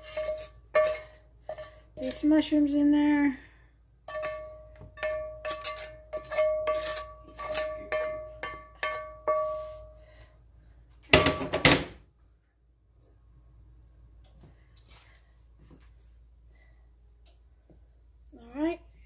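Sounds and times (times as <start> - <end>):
metal cookware clattering: 0.0 - 2.4, 4.1 - 9.9
utensil tapping metal cookware: 4.1 - 9.9.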